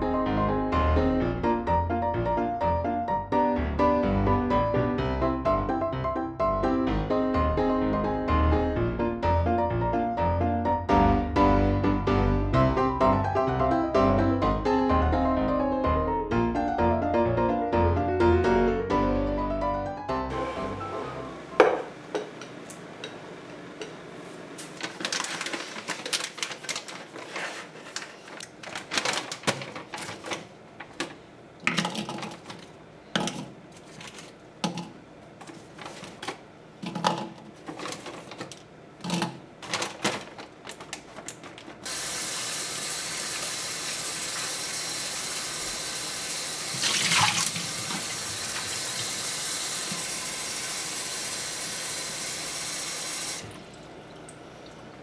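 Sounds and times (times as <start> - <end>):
plastic bag crinkling: 24.6 - 31.1, 33.7 - 34.4, 37.0 - 41.9
faucet running into bowl: 41.8 - 54.8
water splash: 46.7 - 49.0.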